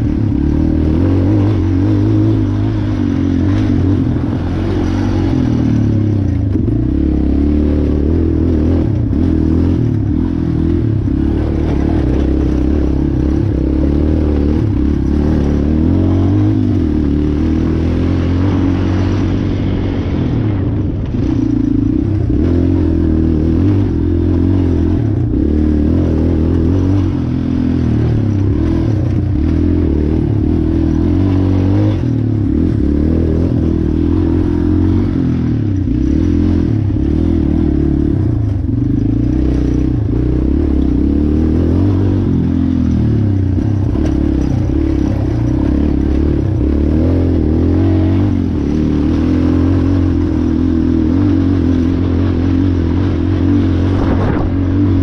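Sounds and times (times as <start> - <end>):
atv engine revving: 0.0 - 55.0
knocks and rattles of vehicle: 42.7 - 46.8.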